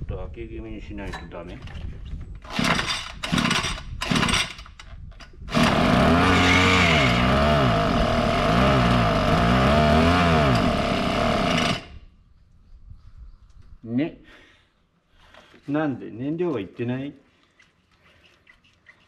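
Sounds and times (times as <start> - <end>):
recoil starter pulls: 2.4 - 12.0
small engine surging: 5.5 - 12.0.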